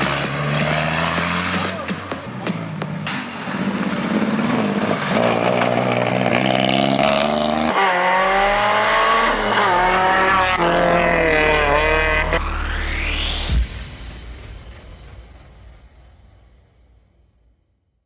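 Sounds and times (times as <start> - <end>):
rally car engines revving: 0.0 - 12.8.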